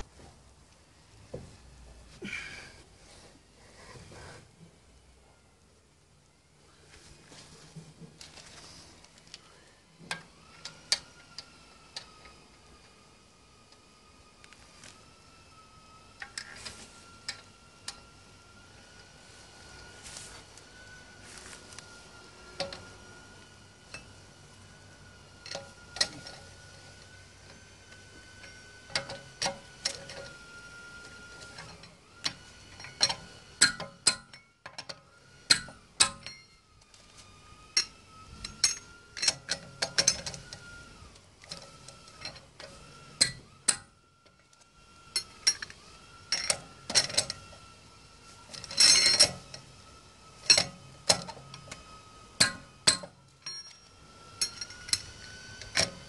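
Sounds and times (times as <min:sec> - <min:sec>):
wheel wrench metallic clinks: 0:35.5 - 0:36.6, 0:48.6 - 0:49.4, 0:52.9 - 0:55.0.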